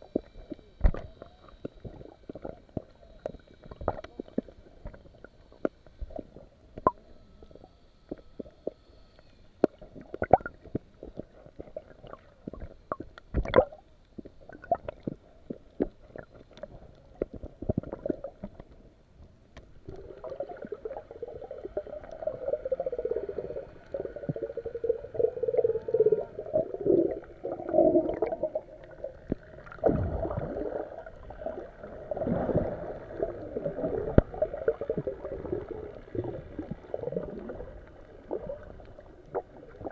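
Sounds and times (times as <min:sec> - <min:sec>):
water gurgling: 0:00.0 - 0:08.9, 0:09.6 - 0:18.7, 0:19.7 - 0:39.9
underwater clicks and pops: 0:00.1 - 0:05.0, 0:05.6 - 0:07.0, 0:12.5 - 0:18.8.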